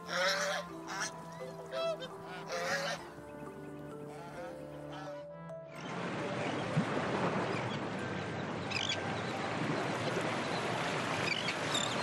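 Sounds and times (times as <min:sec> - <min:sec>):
rushing beach ambience: 0:05.7 - 0:12.0.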